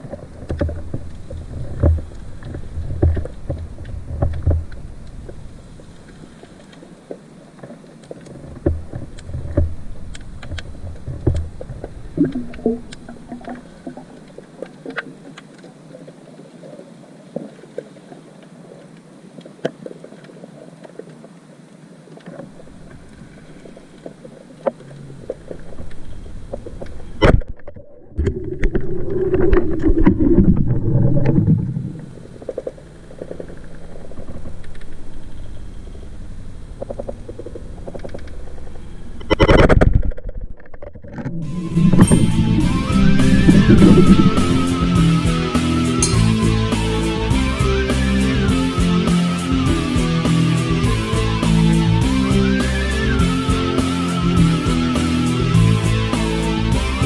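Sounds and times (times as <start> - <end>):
underwater clicks and crackles: 0.0 - 44.6
muffled rushing noise: 8.6 - 14.6, 22.5 - 40.2, 41.3 - 46.7
low muffled rumble: 22.5 - 39.3, 39.9 - 45.5.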